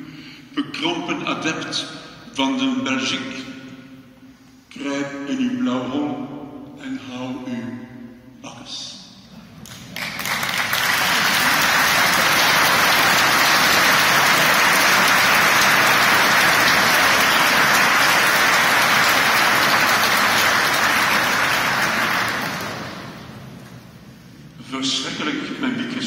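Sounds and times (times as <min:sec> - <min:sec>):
crowd applauding: 0:09.6 - 0:23.6.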